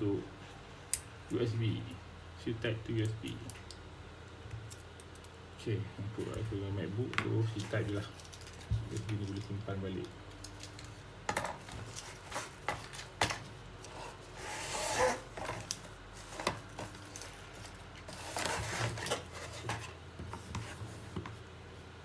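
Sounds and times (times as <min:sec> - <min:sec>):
plastic wrap rustling: 0:07.3 - 0:09.6, 0:10.3 - 0:20.0.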